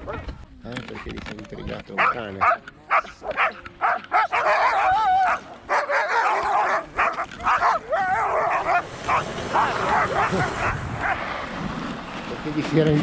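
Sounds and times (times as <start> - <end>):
sled dogs barking and yipping: 0.0 - 12.3
dog whining howl: 3.4 - 5.4.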